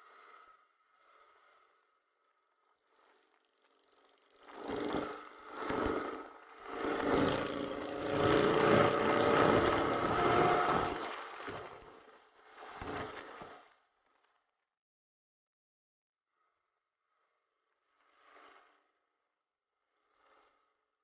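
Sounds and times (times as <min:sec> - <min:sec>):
motorcycle engine running: 0:03.1 - 0:11.9.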